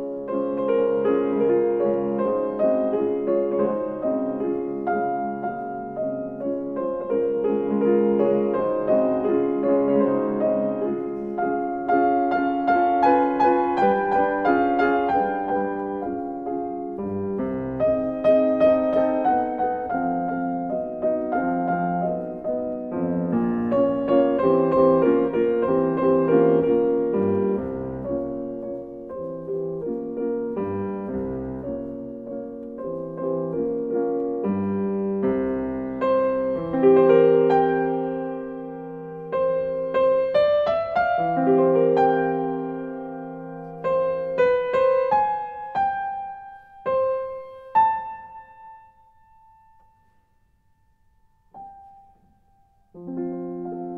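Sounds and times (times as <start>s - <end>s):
gentle piano music: 0.0s - 53.9s.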